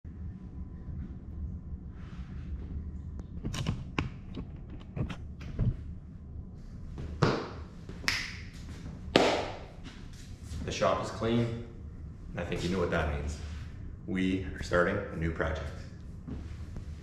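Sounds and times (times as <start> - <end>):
faint low hum: 0.0 - 17.0
footsteps: 6.9 - 11.1.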